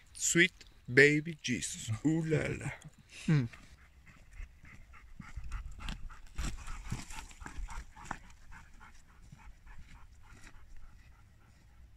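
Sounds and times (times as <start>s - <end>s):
footsteps on stony trail: 3.5s - 11.8s
dog panting: 3.5s - 11.9s.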